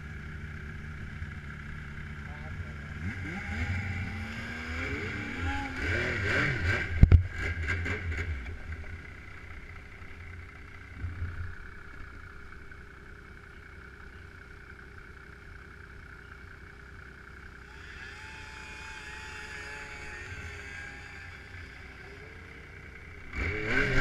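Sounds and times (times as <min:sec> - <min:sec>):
snowmobile engine revving: 0:02.2 - 0:10.0, 0:17.6 - 0:24.0.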